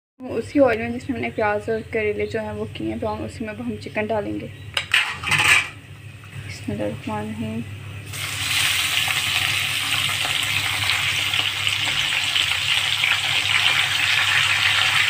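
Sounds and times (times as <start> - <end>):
chicken sizzling in hot oil: 8.1 - 15.0.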